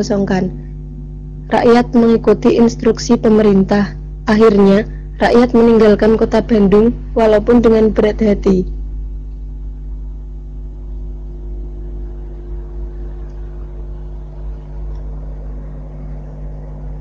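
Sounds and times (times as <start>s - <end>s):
low hum of held tones: 0.0s - 17.0s
low rumble: 8.7s - 17.0s.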